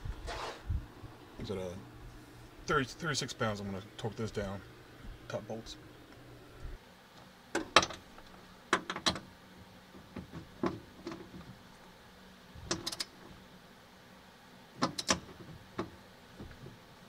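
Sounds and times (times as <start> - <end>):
torque wrench clicking: 12.7 - 13.1.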